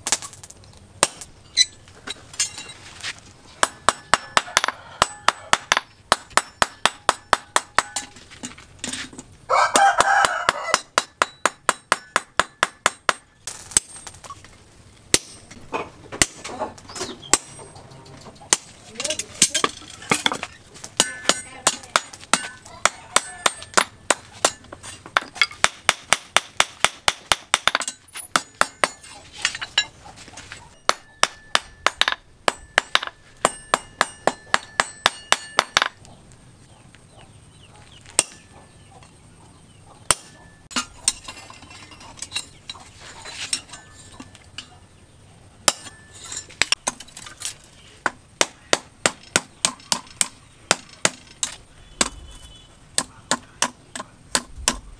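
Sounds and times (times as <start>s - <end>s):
hammer striking hot steel on anvil: 3.6s - 8.2s, 9.7s - 14.0s, 20.9s - 29.9s, 30.8s - 36.0s, 38.2s - 38.5s, 40.1s - 41.3s, 45.6s - 47.0s, 48.0s - 52.2s.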